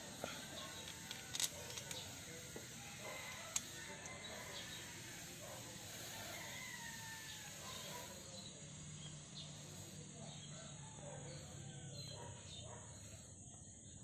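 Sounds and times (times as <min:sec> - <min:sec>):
rooster crowing faintly: 0:00.1 - 0:08.4, 0:09.9 - 0:12.6.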